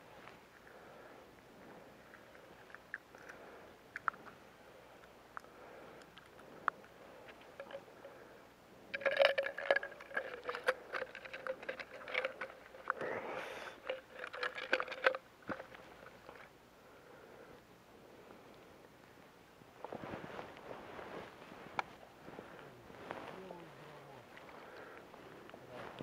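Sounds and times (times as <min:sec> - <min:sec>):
steady hum: 0:00.0 - 0:26.0
fishing reel clicks and rustling: 0:06.0 - 0:08.1, 0:08.9 - 0:16.5.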